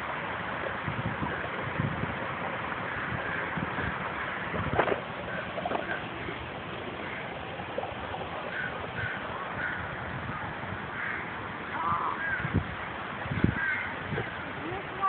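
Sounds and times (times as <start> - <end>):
steady outdoor hiss: 0.0 - 15.0
bird calling: 3.0 - 12.6, 13.3 - 14.8.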